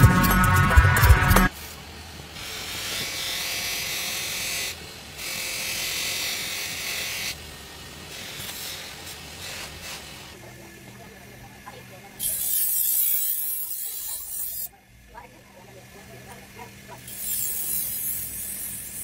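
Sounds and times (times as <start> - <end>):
metal rubbing on buffing wheel: 17.0 - 19.0.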